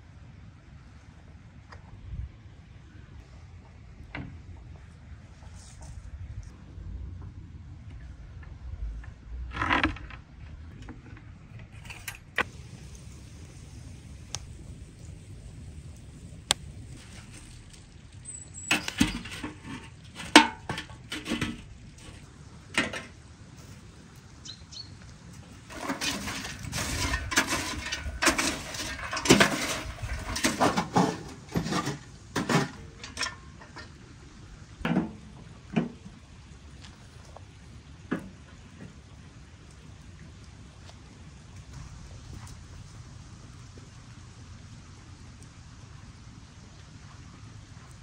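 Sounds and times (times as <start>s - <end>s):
rustling: 9.5s - 22.3s
knocks and clatter of handling: 18.5s - 23.2s, 25.7s - 34.0s.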